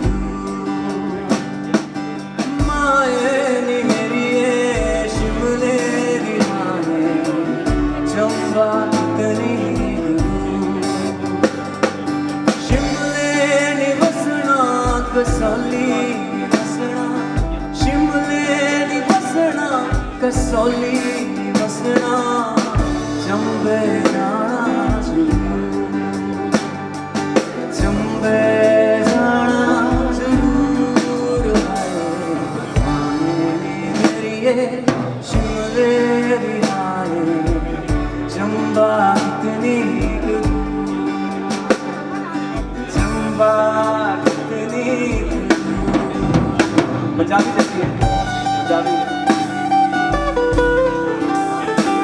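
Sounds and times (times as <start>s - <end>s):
man singing: 0.0s - 52.0s
strummed acoustic guitar: 0.0s - 52.0s.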